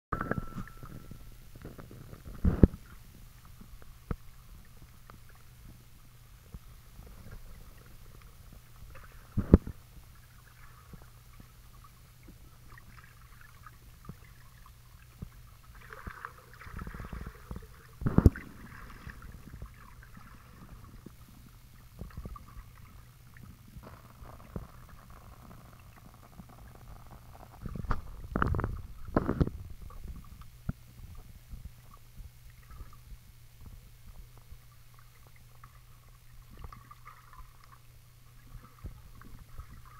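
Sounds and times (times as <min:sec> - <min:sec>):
underwater low hum: 0:00.1 - 0:39.9
water movement: 0:00.2 - 0:39.9.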